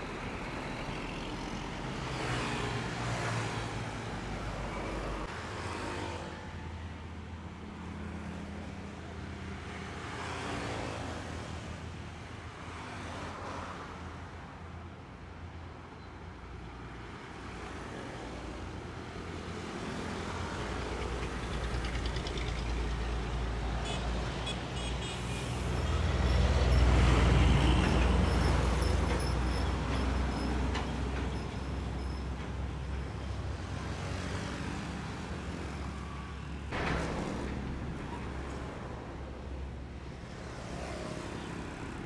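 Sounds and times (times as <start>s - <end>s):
heavy road traffic: 0.0s - 42.0s
diesel truck rumble passing: 20.6s - 24.2s.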